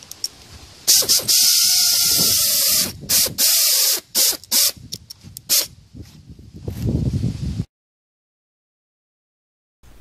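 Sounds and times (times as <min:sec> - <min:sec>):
pneumatic air ratchet: 0:00.0 - 0:04.8, 0:05.5 - 0:05.7
hiss of exhaust air: 0:00.5 - 0:04.8.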